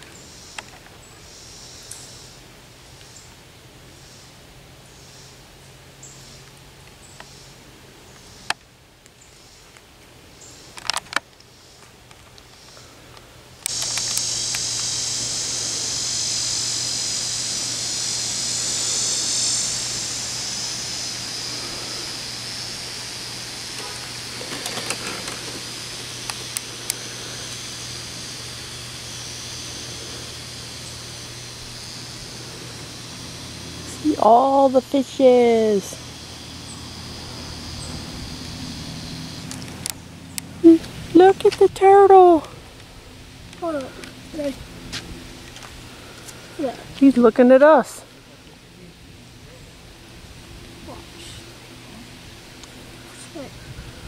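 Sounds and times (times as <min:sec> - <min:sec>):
insects buzzing: 0:00.0 - 0:54.0
sharp clicks: 0:13.6 - 0:15.4.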